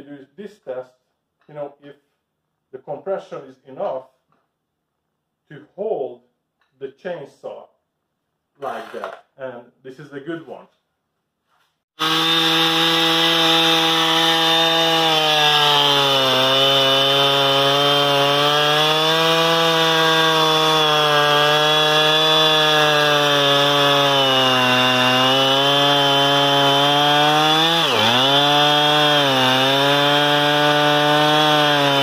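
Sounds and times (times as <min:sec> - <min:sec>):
chainsaw cutting log: 0:08.6 - 0:09.3, 0:12.0 - 0:32.0.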